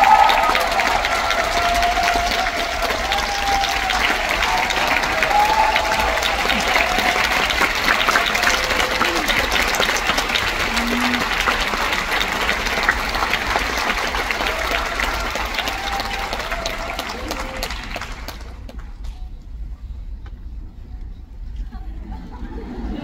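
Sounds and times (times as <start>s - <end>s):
audience applauding: 0.0s - 19.1s.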